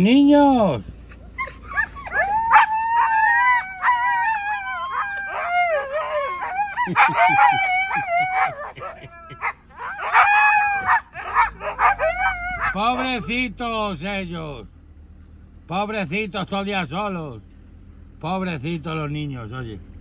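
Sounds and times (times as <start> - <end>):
dogs howling: 1.0 - 13.3.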